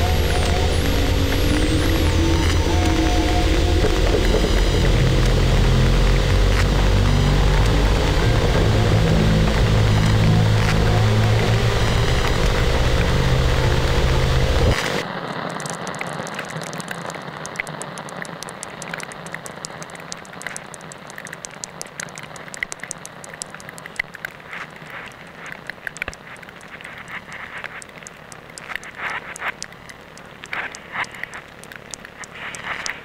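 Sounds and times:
low electronic droning chord: 0:00.0 - 0:15.0
dense crackling clicks: 0:00.0 - 0:33.0.

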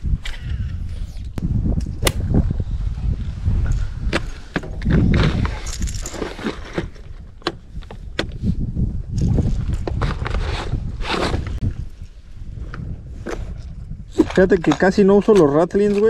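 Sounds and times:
wind buffeting microphone: 0:00.0 - 0:15.3
fishing gear clicks and knocks: 0:03.7 - 0:08.4.

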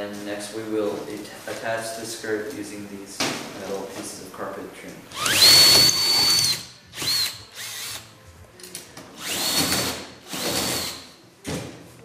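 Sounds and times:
power drill whining: 0:05.2 - 0:08.0, 0:09.2 - 0:11.0.

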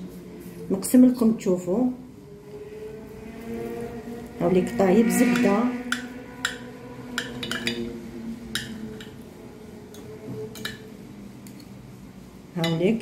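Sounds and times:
cutlery clinking on a plate: 0:07.2 - 0:07.8, 0:10.5 - 0:10.8.

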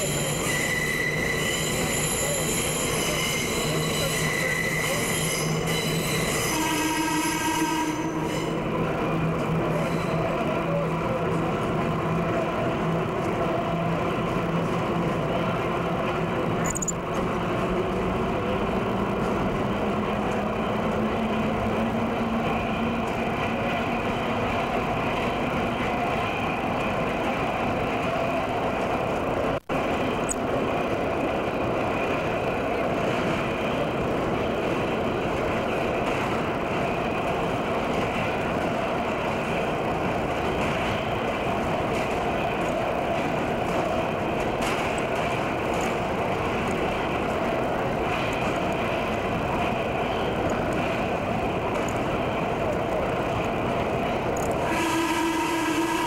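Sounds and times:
subway train rumble: 0:00.0 - 0:56.0.

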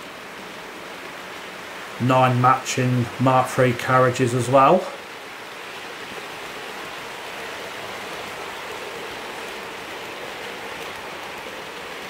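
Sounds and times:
model train wheels rolling: 0:06.1 - 0:12.0.

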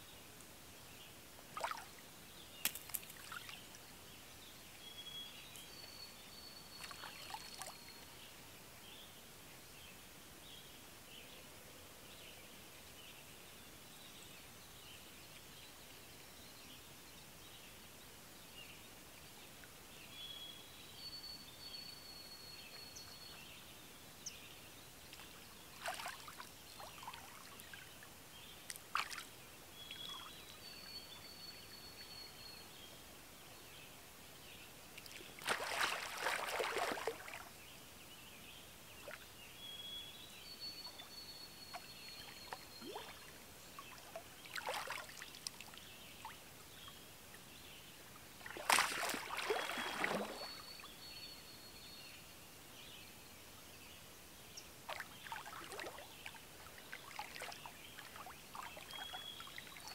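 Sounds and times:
whistled bird song: 0:04.8 - 0:08.2, 0:20.1 - 0:24.4, 0:29.8 - 0:32.9, 0:39.5 - 0:43.9, 0:49.0 - 0:52.2, 0:57.4 - 0:59.9
water splashing: 0:35.0 - 0:37.4, 0:48.4 - 0:50.6.

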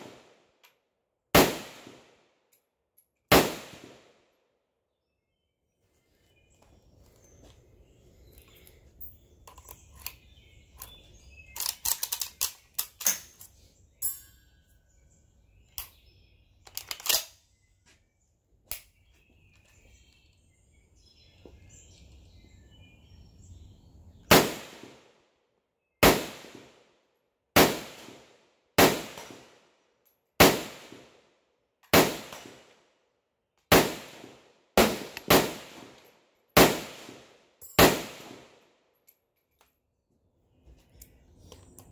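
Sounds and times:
rifle shots with ringing tail: 0:01.3 - 0:02.2, 0:03.3 - 0:04.2, 0:24.3 - 0:25.1, 0:26.0 - 0:26.8, 0:27.6 - 0:29.6, 0:30.4 - 0:31.2, 0:31.9 - 0:32.7, 0:33.7 - 0:36.0, 0:36.6 - 0:38.6
rifle handling clicks and clacks: 0:08.3 - 0:14.2, 0:16.6 - 0:17.4, 0:39.0 - 0:39.8.

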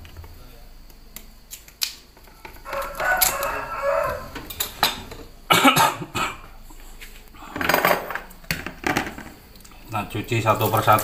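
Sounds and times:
vegetables rinsed in colander: 0:09.2 - 0:11.0.

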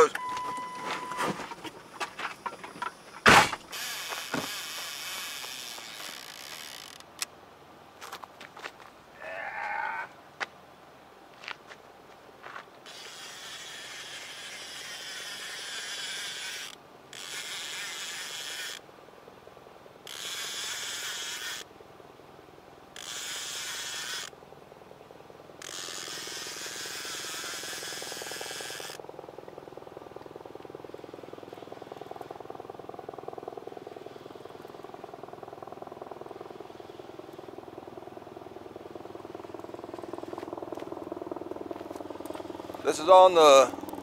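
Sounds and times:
fishing reel buzzing: 0:03.7 - 0:07.3, 0:12.8 - 0:18.8, 0:20.0 - 0:21.7, 0:23.0 - 0:24.4, 0:25.6 - 0:29.0.

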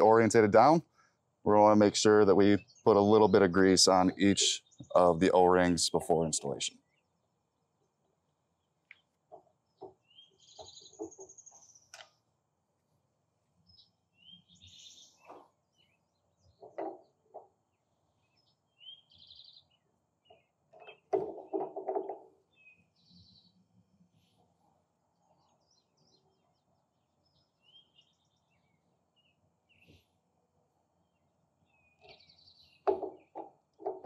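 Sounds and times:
bird chirping: 0:01.5 - 0:07.2, 0:08.3 - 0:12.2, 0:13.6 - 0:30.2, 0:31.0 - 0:34.0.

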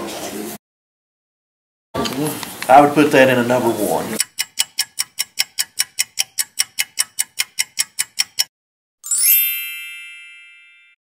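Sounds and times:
clock ticking: 0:04.2 - 0:08.5
bright ringing chime: 0:09.0 - 0:11.0.

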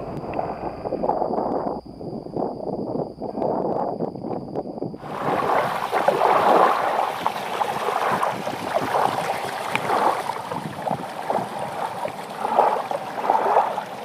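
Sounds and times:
running water splashing: 0:05.0 - 0:14.0.

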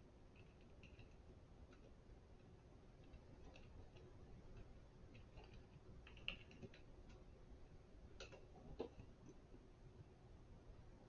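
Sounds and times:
faint clicks and taps: 0:00.3 - 0:07.4, 0:08.1 - 0:09.5.

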